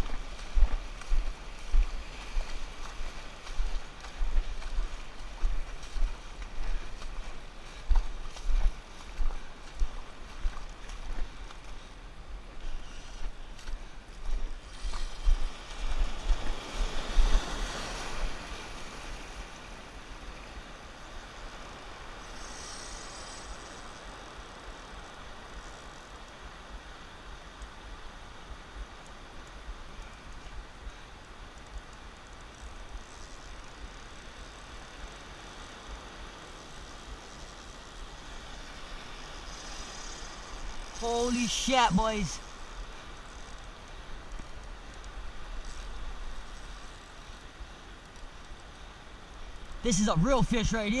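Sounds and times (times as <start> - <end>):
ocean surf over rocks: 14.6 - 30.4, 33.7 - 43.3, 49.0 - 51.0
surf washing over rocks: 15.4 - 22.5.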